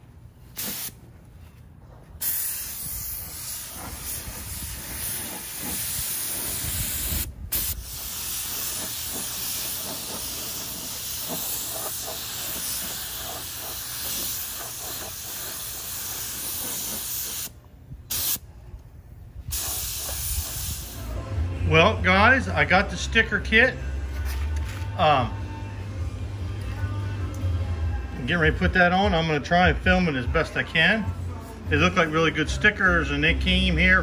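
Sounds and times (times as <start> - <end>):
paint spray gun hissing: 0.6 - 0.9, 2.2 - 17.5, 18.1 - 18.4, 19.5 - 21.1.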